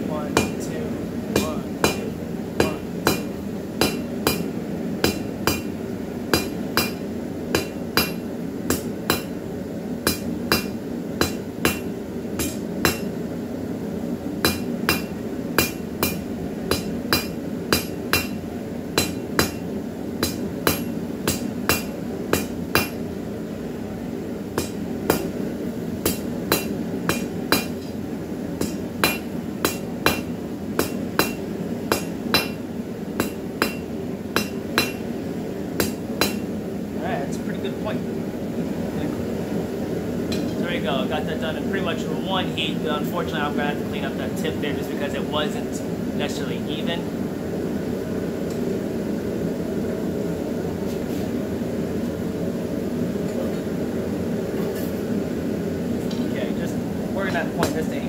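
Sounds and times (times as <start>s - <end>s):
hammer ringing on anvil: 0.3s - 0.7s, 1.4s - 5.7s, 10.1s - 13.1s, 14.4s - 18.4s, 19.0s - 19.6s, 28.6s - 32.6s, 33.2s - 35.0s, 35.8s - 36.5s.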